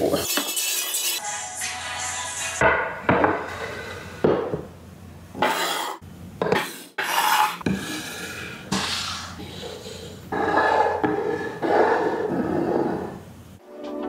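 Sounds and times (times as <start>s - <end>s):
hard objects scraping a surface: 5.4s - 13.3s.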